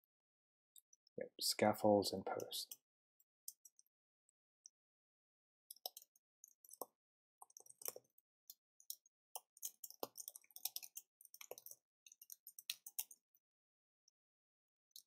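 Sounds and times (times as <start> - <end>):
computer keyboard typing: 5.7 - 8.2, 8.8 - 13.2.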